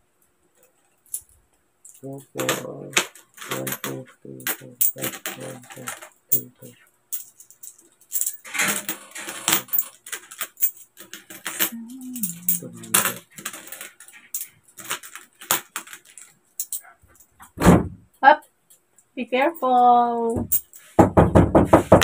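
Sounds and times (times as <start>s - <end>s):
metal coins clinking: 1.1s - 17.3s, 20.5s - 20.9s
loud knock: 17.6s - 18.0s, 20.4s - 22.0s.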